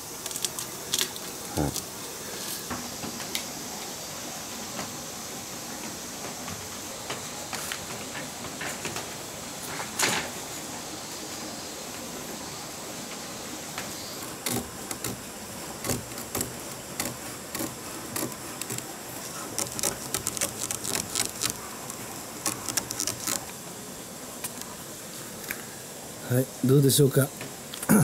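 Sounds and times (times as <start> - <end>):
utility knife cutting mesh: 14.2 - 23.5.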